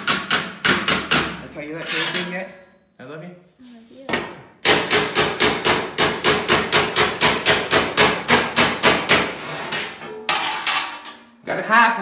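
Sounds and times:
hammer striking steel panel: 0.0 - 1.4, 4.6 - 11.2.

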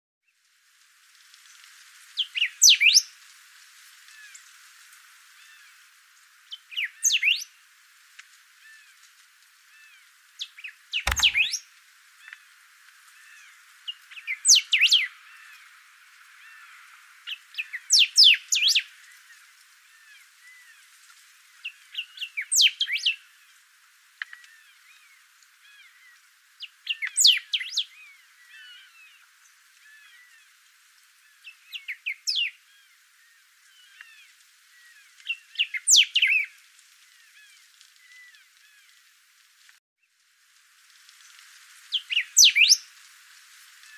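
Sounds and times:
faint bird chirping: 11.0 - 11.6
bird singing sweeping notes: 11.1 - 11.6.

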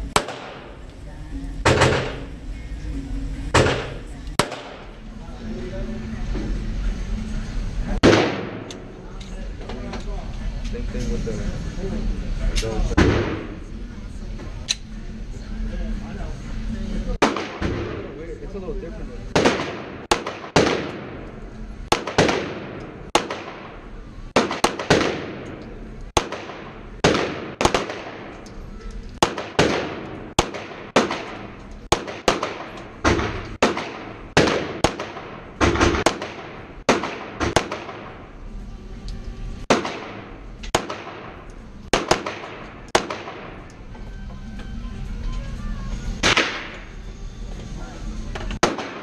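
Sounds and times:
pistol shots echoing indoors: 0.1 - 0.8, 1.7 - 2.3, 3.5 - 5.0, 8.0 - 8.9, 17.2 - 18.1, 19.3 - 28.5, 29.2 - 38.3, 39.6 - 43.8, 46.2 - 46.8, 48.6 - 49.0.

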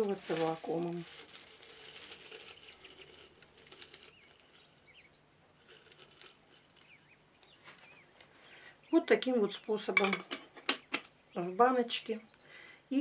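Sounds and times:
dried flakes rustling and crackling: 0.0 - 8.5.

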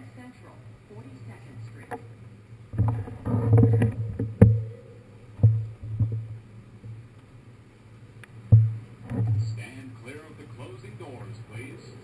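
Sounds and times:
sharp knocks and clanks: 2.8 - 4.8, 5.4 - 6.3, 8.5 - 9.6.

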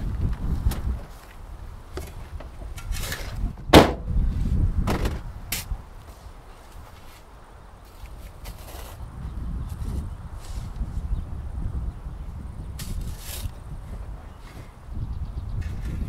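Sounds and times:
car door slamming: 3.7 - 4.1
knocks and rustles: 4.8 - 5.7.

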